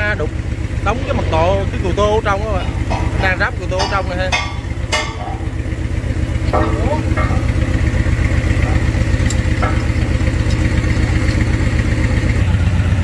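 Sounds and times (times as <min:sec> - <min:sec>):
large engine idling: 0:00.0 - 0:13.0.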